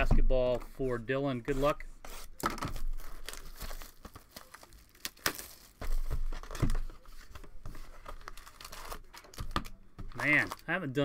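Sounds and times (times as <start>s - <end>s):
plastic wrapping crinkling and tearing: 2.7s - 10.8s.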